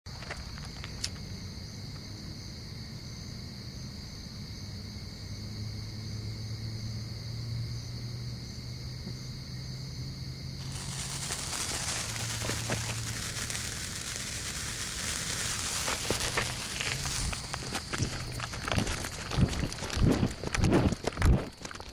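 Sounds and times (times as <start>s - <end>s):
crickets chirping: 0.1s - 21.9s
firework hissing sparks: 10.6s - 21.4s
firework crackles: 10.6s - 21.9s.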